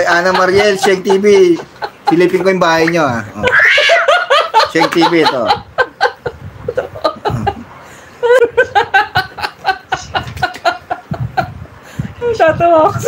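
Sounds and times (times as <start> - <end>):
man laughing heartily: 0.0 - 11.8.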